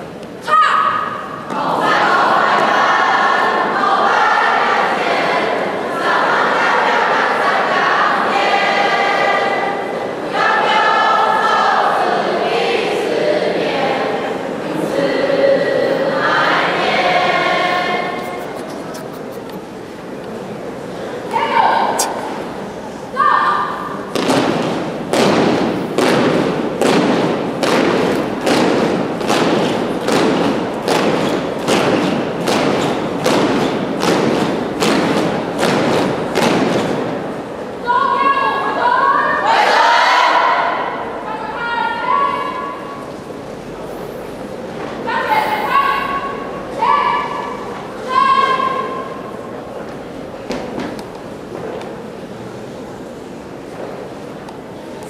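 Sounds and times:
choir singing long held notes: 1.4s - 18.6s.

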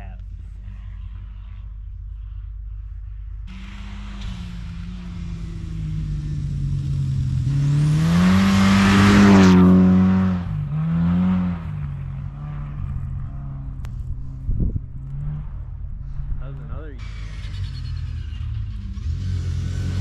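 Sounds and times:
tyre and snow spray noise: 3.5s - 9.7s
rally car engine passing: 3.5s - 20.0s.

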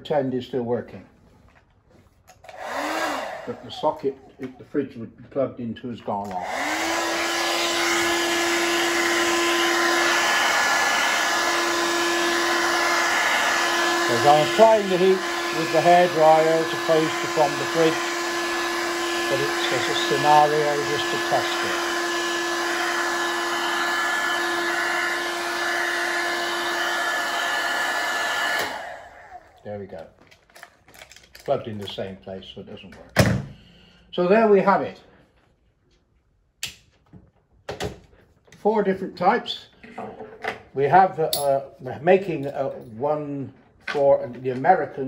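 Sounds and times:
hair dryer running: 2.4s - 4.6s, 6.3s - 29.6s.

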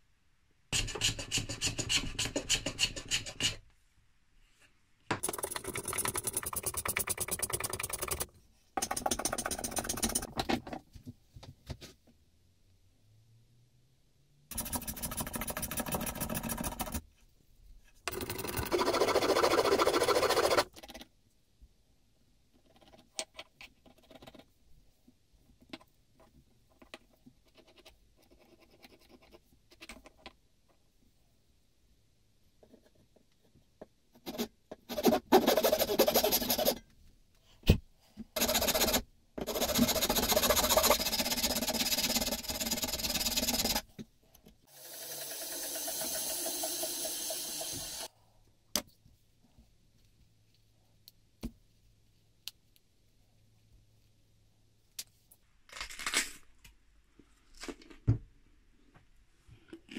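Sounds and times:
pencil scratching wood: 0.8s - 3.6s, 5.2s - 10.3s, 14.5s - 17.0s, 18.1s - 20.7s, 34.2s - 36.8s, 38.4s - 43.9s
hand file scraping wood: 18.2s - 20.7s, 34.3s - 36.8s, 38.4s - 43.8s.

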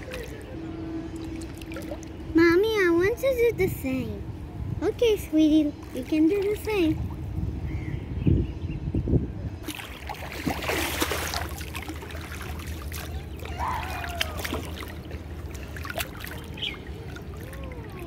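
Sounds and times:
pool water lapping and splashing: 0.0s - 2.3s, 5.4s - 7.3s, 9.6s - 18.0s.

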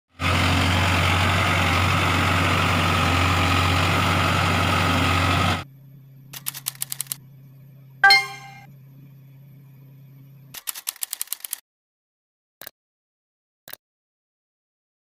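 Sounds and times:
diesel engine running: 0.1s - 5.6s.

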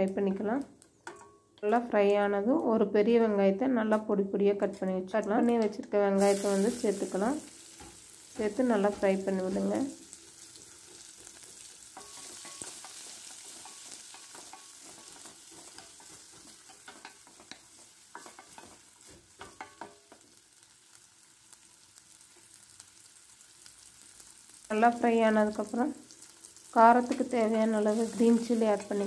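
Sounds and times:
spatula scraping and tapping pan: 0.9s - 1.8s, 5.5s - 20.4s
onions sizzling in oil: 6.2s - 29.0s.

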